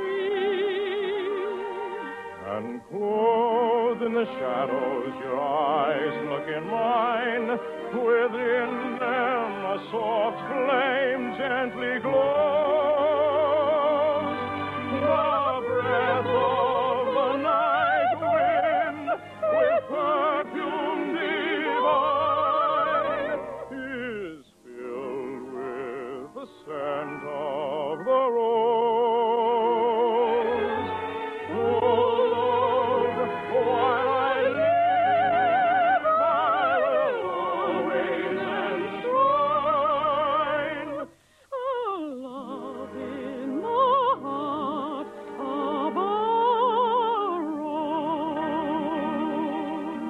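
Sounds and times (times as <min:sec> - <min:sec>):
classical singing with vibrato: 0:00.0 - 0:50.0
orchestra playing: 0:03.2 - 0:24.2, 0:29.5 - 0:41.1.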